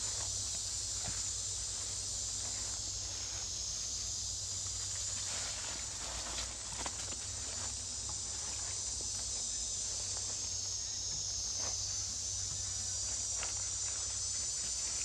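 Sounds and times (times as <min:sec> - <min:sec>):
high-pitched insect chorus: 0:00.0 - 0:15.0
rustling in dry leaves: 0:04.6 - 0:08.8.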